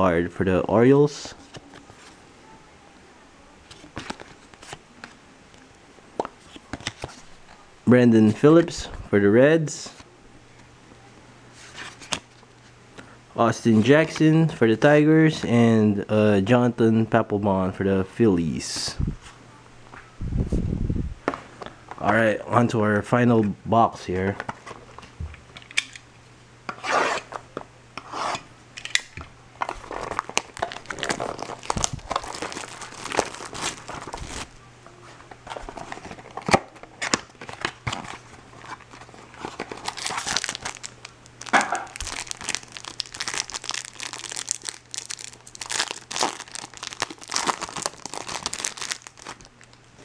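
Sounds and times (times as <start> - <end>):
faint low hum: 0.0 - 50.0
packaging tearing and crinkling: 29.6 - 34.5, 35.4 - 49.7.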